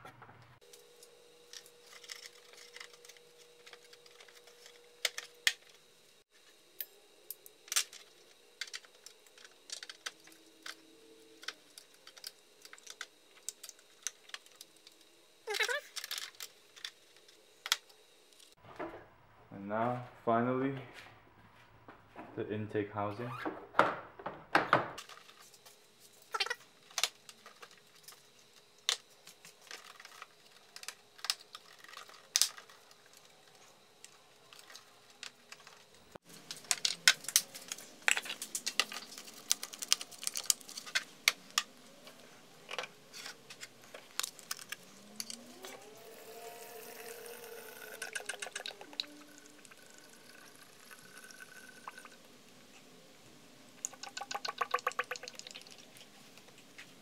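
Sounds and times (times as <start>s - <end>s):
oil pouring through a funnel: 53.9s - 55.9s.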